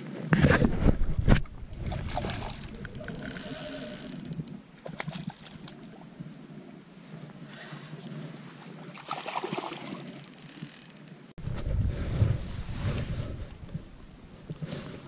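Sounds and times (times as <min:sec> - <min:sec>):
handling noise: 0:02.6 - 0:05.3, 0:09.6 - 0:11.3
fish splashing: 0:09.0 - 0:10.9
wind buffeting microphone: 0:11.4 - 0:14.7.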